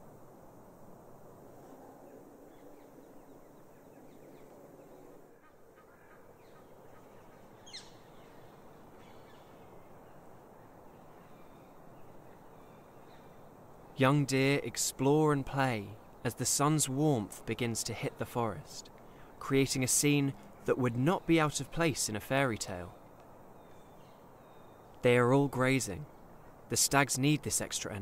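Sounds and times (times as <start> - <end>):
bird calls: 1.6 - 14.1, 17.8 - 26.6.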